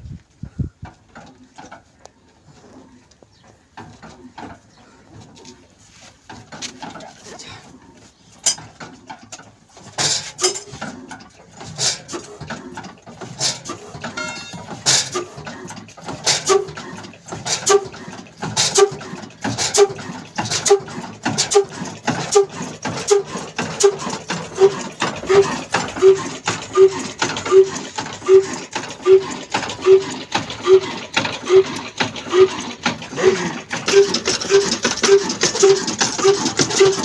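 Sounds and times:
diesel engine firing beats: 0:08.5 - 0:37.0
sharp metal knocks: 0:14.0 - 0:15.1.

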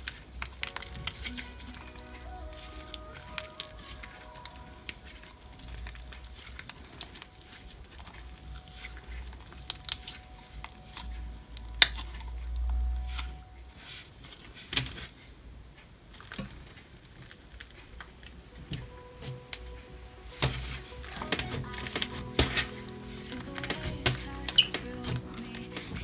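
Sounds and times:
slime squishing and popping: 0:00.0 - 0:13.3.

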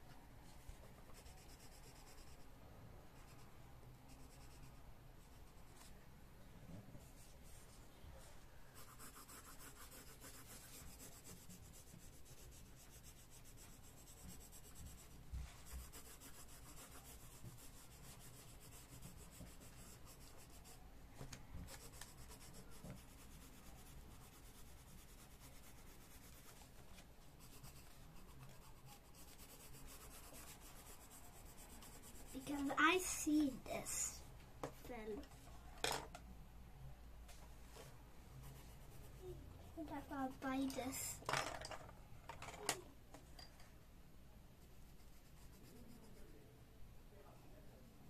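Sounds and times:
pencil scratching on paper: 0:01.0 - 0:02.4, 0:04.1 - 0:05.9, 0:08.8 - 0:20.8, 0:21.6 - 0:26.8, 0:27.4 - 0:34.2, 0:44.6 - 0:46.4.

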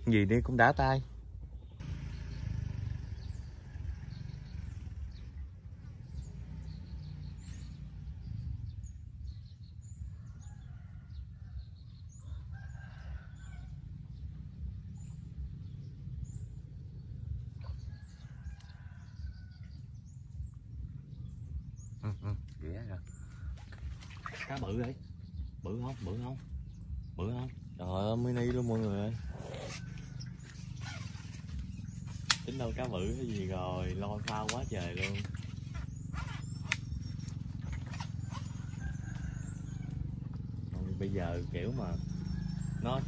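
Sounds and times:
low steady rumble: 0:00.0 - 0:43.0
small birds chirping: 0:00.0 - 0:43.0
roosters crowing: 0:10.1 - 0:14.2, 0:17.6 - 0:20.2, 0:28.5 - 0:43.0.

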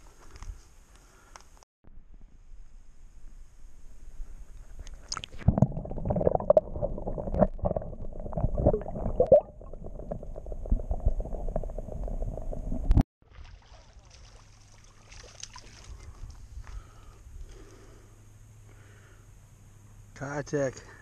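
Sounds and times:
water splashing: 0:05.0 - 0:16.4
muffled underwater gurgling: 0:05.4 - 0:13.0.

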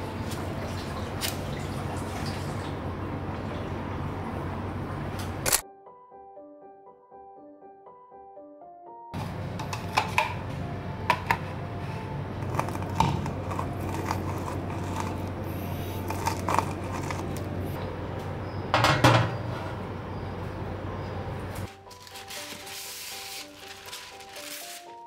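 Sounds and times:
steady low hum: 0:09.2 - 0:21.7
metal baking pan clattering: 0:18.8 - 0:19.5.

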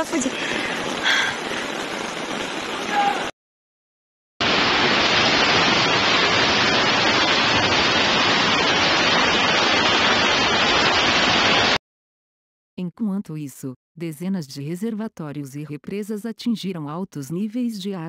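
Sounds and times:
floodwater rushing: 0:00.0 - 0:03.3, 0:04.4 - 0:11.8.

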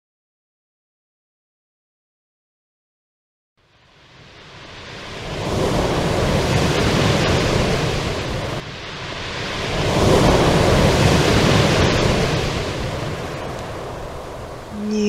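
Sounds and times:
waves washing over pebble beach: 0:04.9 - 0:14.6.

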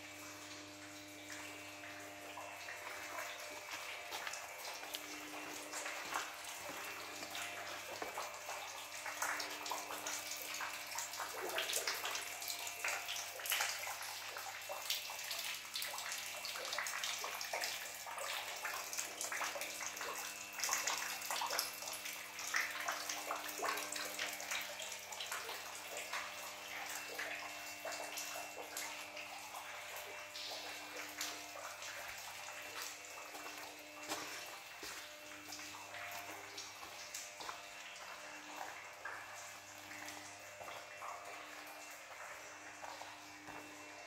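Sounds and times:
water splashing and dripping: 0:00.0 - 0:44.0.

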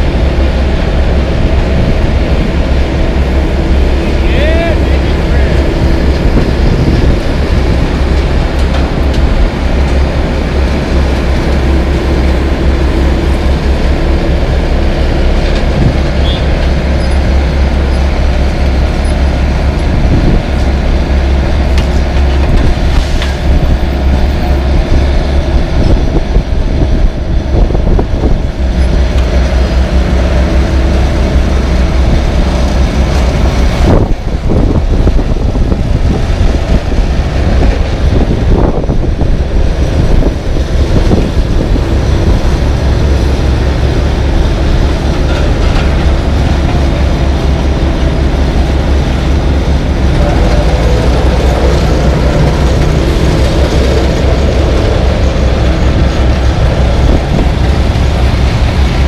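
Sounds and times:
diesel engine running: 0:00.0 - 0:59.0
wind rumble on microphone: 0:00.0 - 0:59.0
knocks and clanks: 0:45.2 - 0:46.7.

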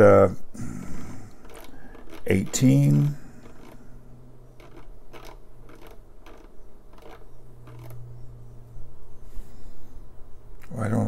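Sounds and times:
steady low hum: 0:00.0 - 0:11.0
knob detent clicks: 0:01.4 - 0:03.8, 0:04.6 - 0:08.1.

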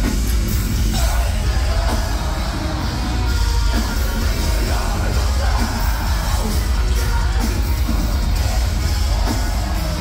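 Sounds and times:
distorted electric guitars: 0:00.0 - 0:10.0
drums: 0:00.0 - 0:10.0.

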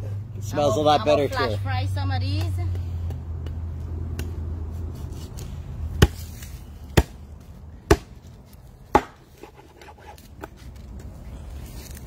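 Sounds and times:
knife chopping on wooden board: 0:08.9 - 0:09.2.

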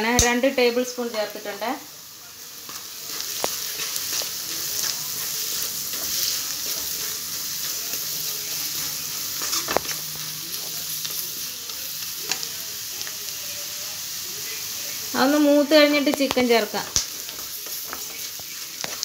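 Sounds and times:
onions sizzling in oil: 0:00.0 - 0:19.0
wooden spatula scraping pan: 0:03.7 - 0:10.8.

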